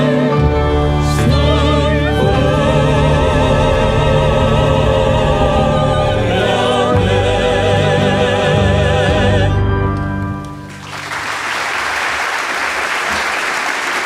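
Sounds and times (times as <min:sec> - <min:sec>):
singers holding final chord: 0:00.0 - 0:10.0
audience applause: 0:10.7 - 0:14.0.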